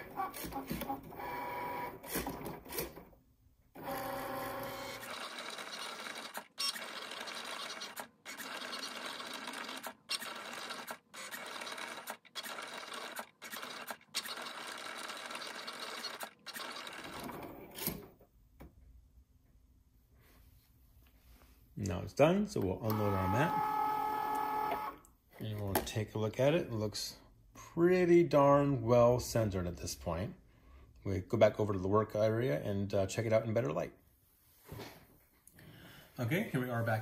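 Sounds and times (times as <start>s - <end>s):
cutting machine motors whining: 3.8s - 17.6s, 22.8s - 25.0s.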